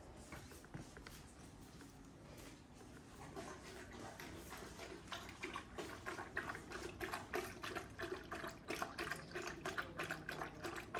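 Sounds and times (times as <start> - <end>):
dog lapping water: 3.0 - 10.9.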